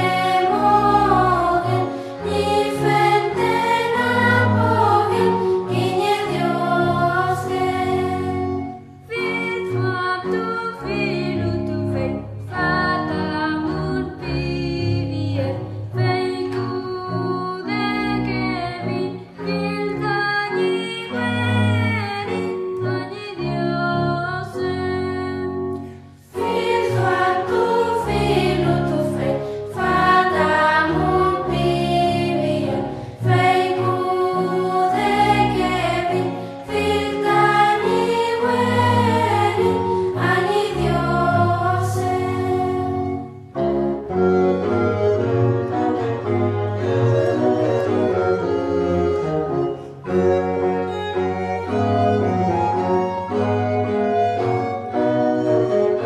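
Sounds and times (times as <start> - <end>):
choir singing a hymn: 0.0 - 19.1, 26.2 - 49.8.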